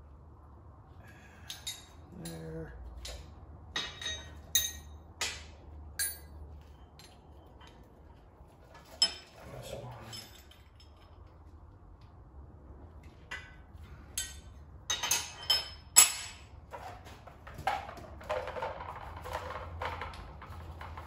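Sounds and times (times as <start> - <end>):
metal tools clinking: 1.4 - 5.4, 6.0 - 7.8, 8.7 - 11.4, 13.3 - 16.5.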